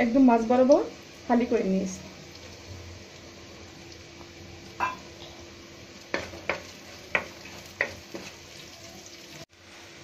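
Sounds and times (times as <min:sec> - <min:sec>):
onions sizzling in oil: 0:00.0 - 0:10.0
wooden spatula knocking on pan: 0:06.1 - 0:08.4.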